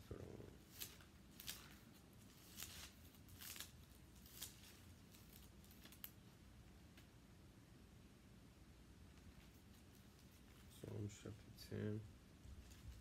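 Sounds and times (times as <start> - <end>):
pages rustling: 0.2 - 6.3.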